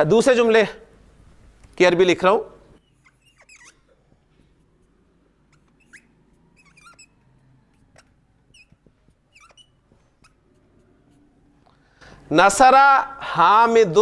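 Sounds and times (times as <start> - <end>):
marker squeaking on board: 2.8 - 11.8.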